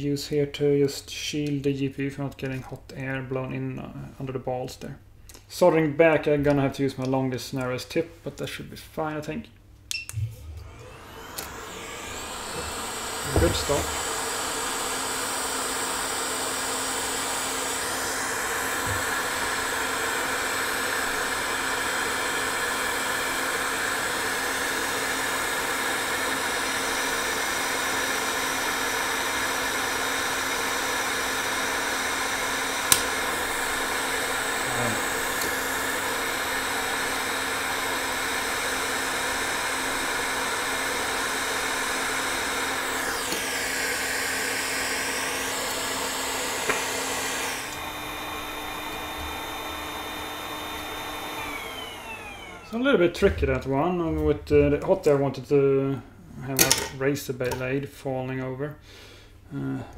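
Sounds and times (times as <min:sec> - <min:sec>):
low blower hum: 0:10.1 - 0:54.9
hot air blower hiss: 0:10.3 - 0:52.9.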